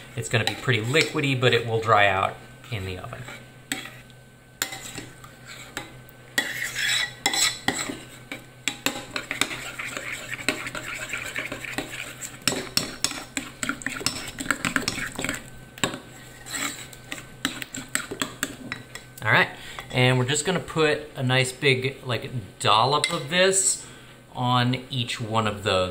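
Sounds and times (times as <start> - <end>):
fork clinking and scraping bowl: 0.3 - 1.6, 3.2 - 19.1.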